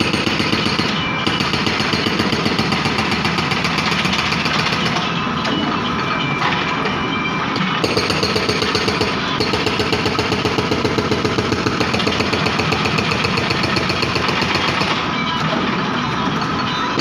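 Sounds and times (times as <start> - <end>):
hydraulic breaker hammering concrete: 7.8 - 15.0.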